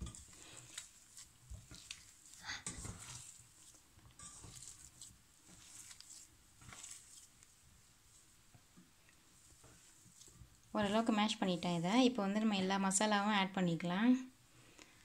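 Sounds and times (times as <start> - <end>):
potatoes squishing and crumbling: 0.0 - 8.3.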